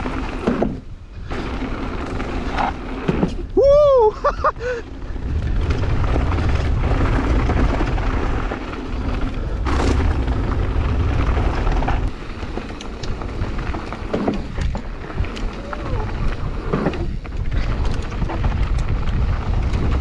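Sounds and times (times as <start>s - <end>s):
bike rattling and clicks: 0.0s - 20.0s
bike tyre noise: 0.0s - 20.0s
wind buffeting microphone: 3.4s - 20.0s.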